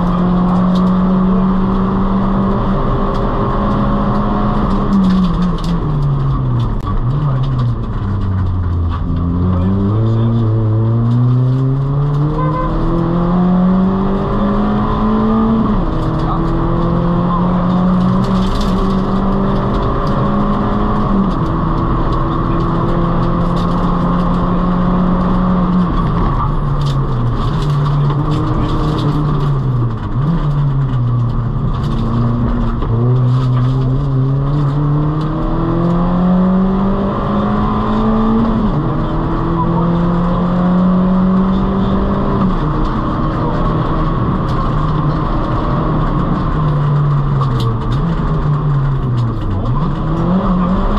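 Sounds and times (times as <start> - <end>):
car engine revving through gears: 0.0 - 50.9.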